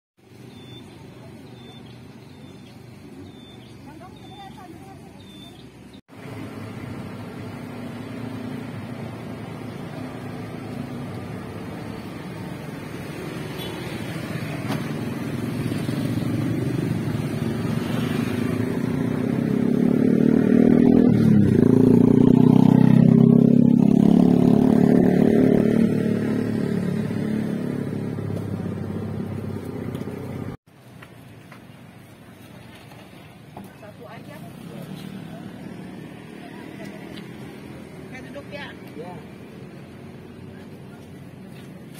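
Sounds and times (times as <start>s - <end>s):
vehicle engine passing by: 6.1s - 30.6s, 34.0s - 41.9s.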